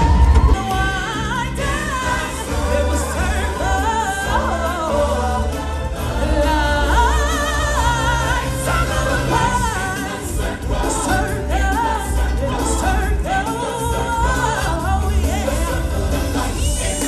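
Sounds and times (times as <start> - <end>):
amplified backing music with heavy bass: 0.0 - 17.0
people singing into microphones: 0.0 - 17.0.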